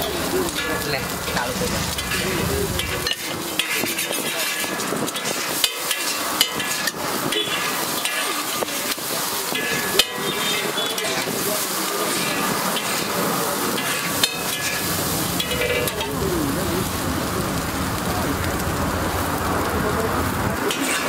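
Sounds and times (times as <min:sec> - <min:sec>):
metal spatula scraping griddle: 0:00.0 - 0:16.2, 0:20.6 - 0:21.0
egg sizzling on griddle: 0:00.0 - 0:21.0.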